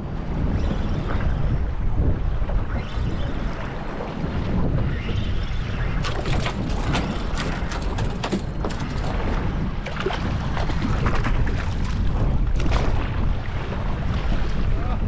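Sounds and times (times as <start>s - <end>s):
water along hull: 0.0s - 15.0s
outboard motor rumbling: 6.0s - 15.0s.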